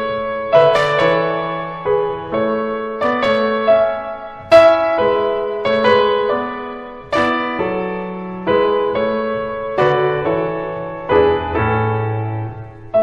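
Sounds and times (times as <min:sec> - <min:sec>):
slow solo piano chords: 0:00.0 - 0:13.0.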